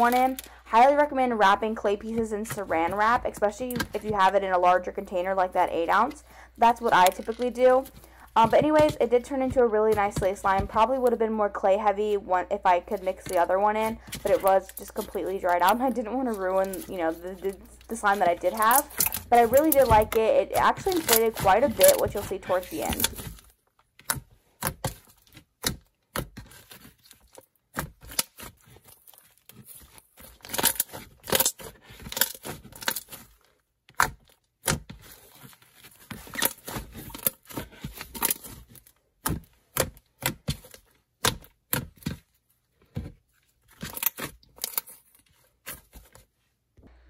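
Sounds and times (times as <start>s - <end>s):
hands squishing sticky slime: 2.4s - 4.4s, 12.9s - 23.4s.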